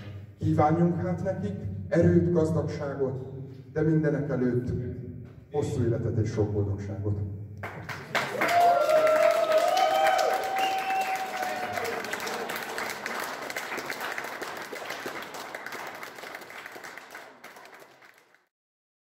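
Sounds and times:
crowd applauding: 0:07.6 - 0:18.5
cheering shouts: 0:08.3 - 0:12.7.

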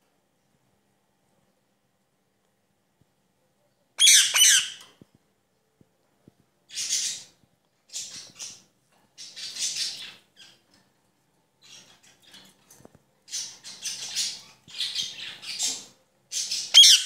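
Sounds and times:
parrot shrill squawk: 0:04.0 - 0:04.8, 0:16.4 - 0:17.0
parrot calling: 0:04.0 - 0:04.9, 0:13.3 - 0:17.0.

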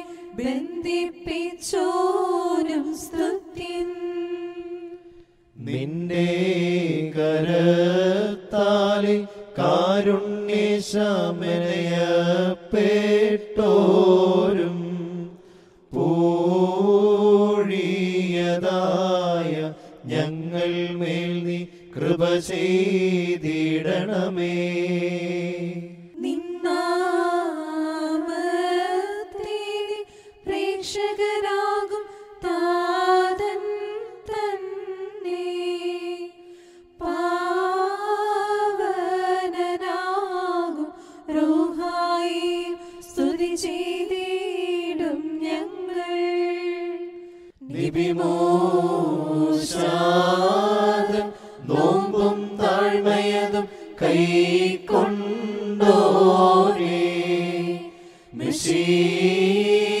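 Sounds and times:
higher voice chanting hymn: 0:46.9 - 1:00.0
lower voice chanting hymn: 0:47.6 - 1:00.0.

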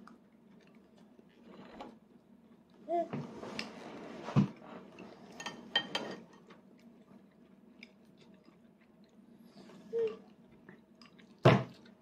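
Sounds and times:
soft chewing: 0:00.0 - 0:02.9, 0:06.2 - 0:12.0.

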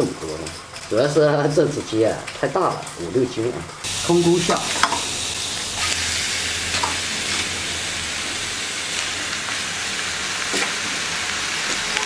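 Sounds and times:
chicken sizzling in a wok: 0:03.8 - 0:12.0.

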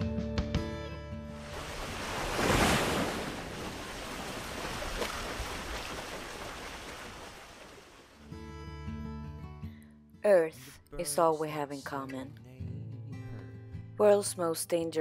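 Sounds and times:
choppy sea waves rushing: 0:01.4 - 0:08.2.

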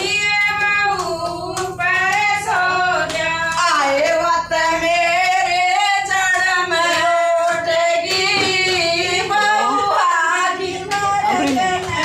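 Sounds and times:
hand clapping: 0:00.0 - 0:04.4, 0:05.2 - 0:12.0
women singing devotional song: 0:00.0 - 0:12.0.

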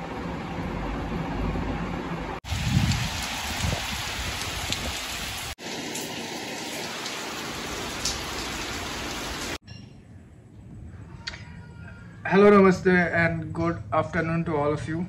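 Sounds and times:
heavy rain pouring: 0:02.4 - 0:09.6.

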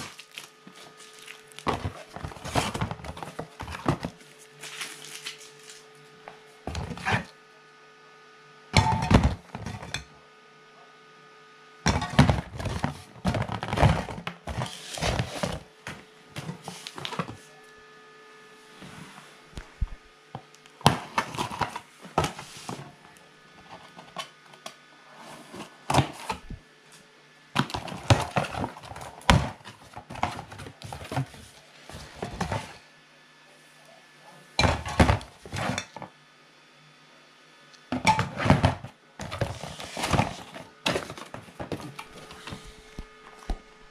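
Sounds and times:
cardboard rustling: 0:00.0 - 0:05.9, 0:12.3 - 0:17.5, 0:27.6 - 0:32.8, 0:38.6 - 0:43.9.

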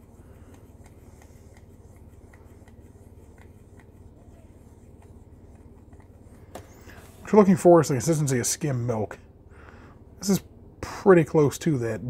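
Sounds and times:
brush handle stirring paint: 0:00.0 - 0:07.4
low steady hum: 0:00.0 - 0:12.0.

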